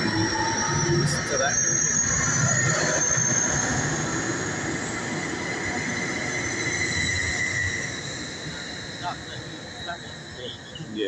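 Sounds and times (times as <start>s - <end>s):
high-pitched squealing: 0.0s - 11.0s
train running: 0.0s - 11.0s.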